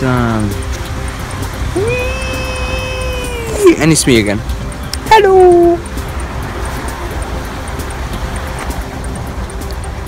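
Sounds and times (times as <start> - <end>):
man crying wheee: 1.8 - 3.7.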